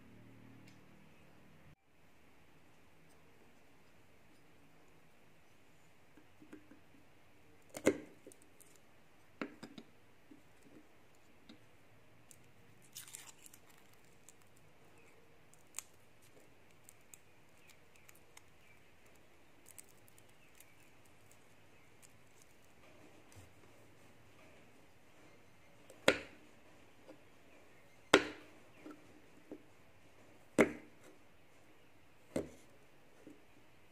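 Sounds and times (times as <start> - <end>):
garlic skin crackling: 12.2 - 23.6.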